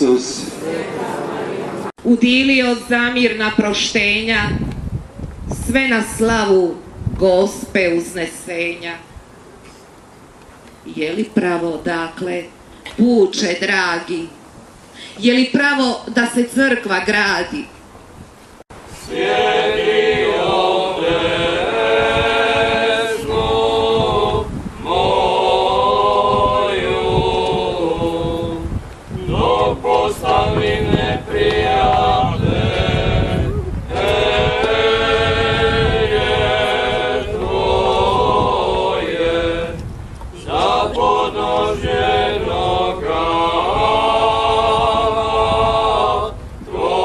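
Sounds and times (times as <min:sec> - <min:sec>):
choir singing a hymn: 0:00.2 - 0:01.9, 0:18.9 - 0:47.0.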